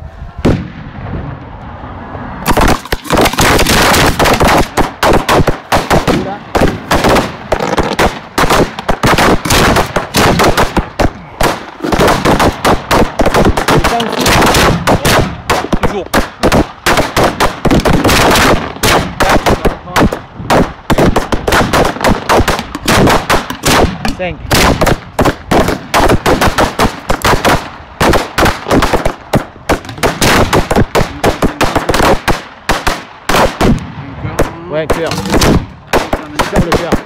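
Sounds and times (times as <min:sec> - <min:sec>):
fireworks bangs: 0:00.2 - 0:01.6, 0:02.3 - 0:37.0.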